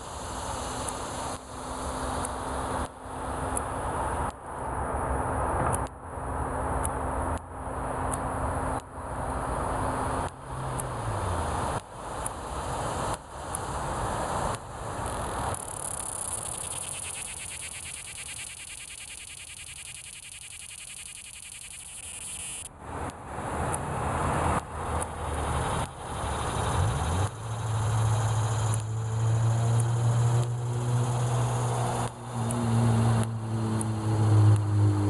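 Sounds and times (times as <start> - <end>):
engine low hum: 0.0 - 35.0
cicada buzzing: 15.1 - 22.7, 25.3 - 33.2.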